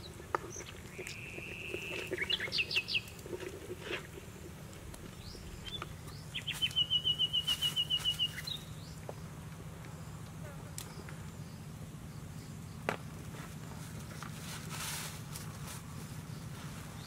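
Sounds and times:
bird whistle and chirps: 0:00.9 - 0:03.1, 0:05.2 - 0:08.8
fast bird trill: 0:05.7 - 0:08.7.

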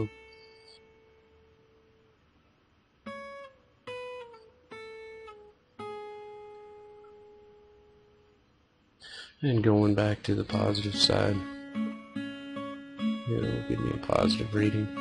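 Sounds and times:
plucked guitar notes: 0:00.0 - 0:01.9, 0:03.0 - 0:08.1, 0:10.0 - 0:15.0.

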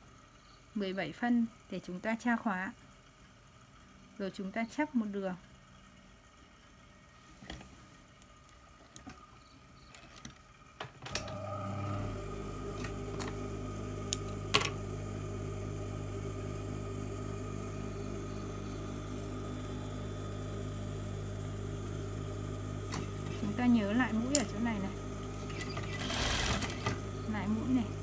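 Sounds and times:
sewing machine stitching: 0:22.8 - 0:27.9.

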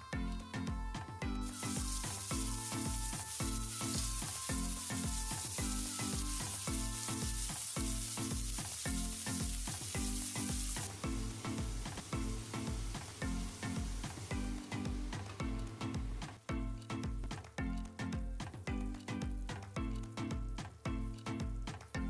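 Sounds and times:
background music with steady beat: 0:00.0 - 0:22.0
hot oil sizzling in a wok: 0:01.4 - 0:16.5.

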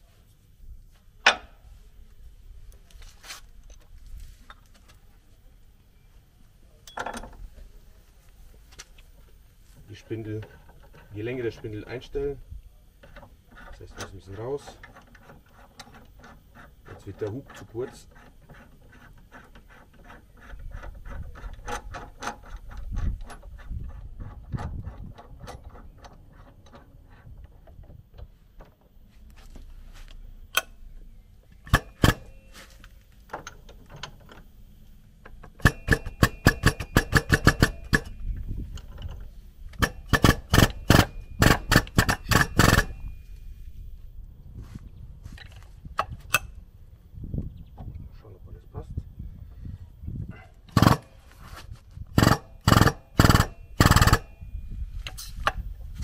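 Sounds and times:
metal clicking and clinking: 0:35.2 - 0:43.3.

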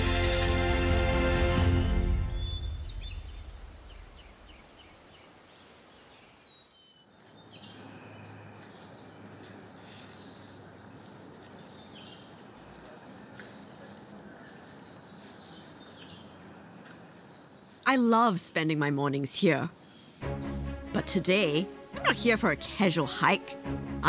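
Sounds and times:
insects humming: 0:02.3 - 0:22.0
high bird chirps: 0:11.6 - 0:13.8.

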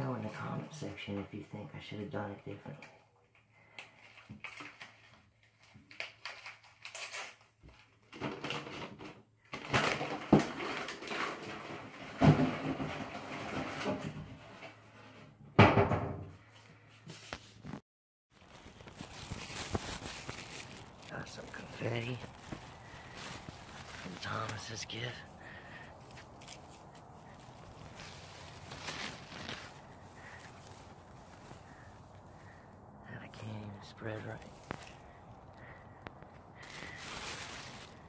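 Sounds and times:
wrapping paper rustling: 0:04.0 - 0:07.8, 0:18.3 - 0:32.6, 0:33.3 - 0:38.0.

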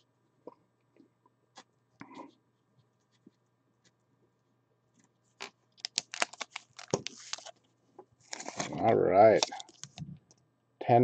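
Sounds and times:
foil wrappers crinkling: 0:05.4 - 0:07.6, 0:08.2 - 0:10.0.

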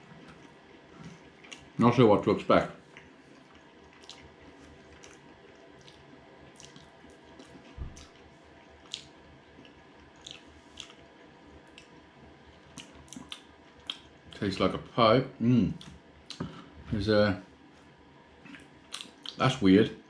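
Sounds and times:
wet chewing mouth sounds: 0:00.1 - 0:01.8, 0:02.8 - 0:14.4, 0:15.7 - 0:16.7, 0:18.4 - 0:19.4
soft low thump: 0:07.8 - 0:08.0.

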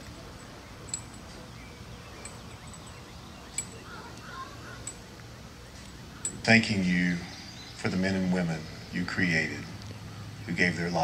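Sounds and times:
steady low hum: 0:00.0 - 0:11.0
faint chirping: 0:00.3 - 0:11.0.

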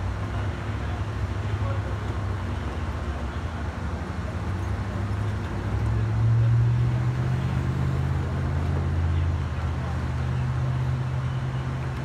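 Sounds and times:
cars driving past: 0:00.0 - 0:12.0.

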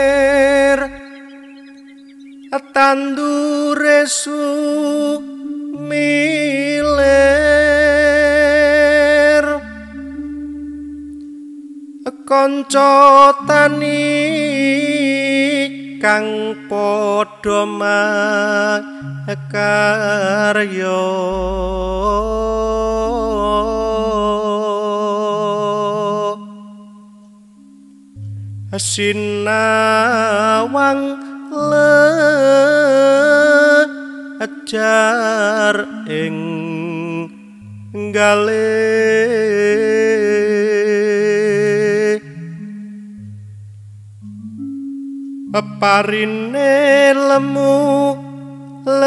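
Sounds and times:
deep bass note: 0:00.0 - 0:01.2, 0:21.3 - 0:25.0, 0:28.2 - 0:30.8
sustained low accompaniment: 0:00.0 - 0:02.6, 0:04.9 - 0:17.6, 0:19.1 - 0:33.6
person singing long note: 0:00.0 - 0:43.7, 0:45.1 - 0:49.0
instrumental backing: 0:00.0 - 0:49.0.

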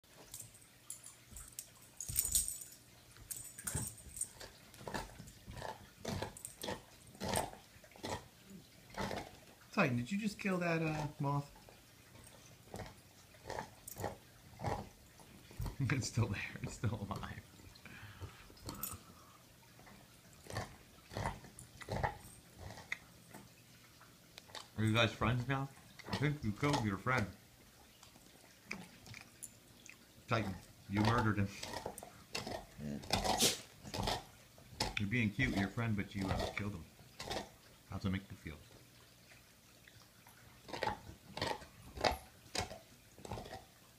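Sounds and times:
dog snorting breaths: 0:32.4 - 0:34.2.

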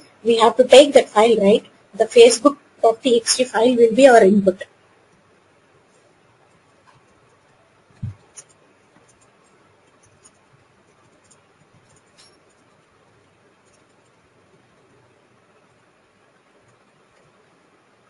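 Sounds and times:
low hiss: 0:00.0 - 0:18.0
keyboard typing: 0:06.5 - 0:17.6.

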